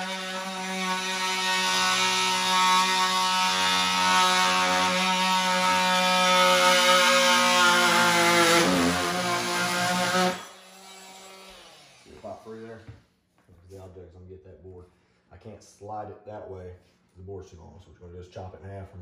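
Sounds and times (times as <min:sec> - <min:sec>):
power tool cutting wood: 0:00.0 - 0:12.6.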